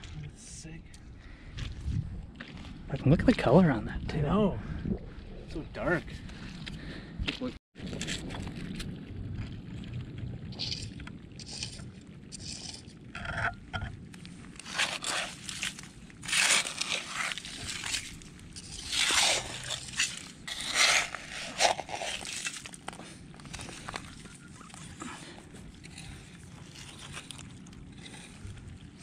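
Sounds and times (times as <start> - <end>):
metal trowel scraping gravel and shells: 10.6 - 13.9, 14.6 - 29.0.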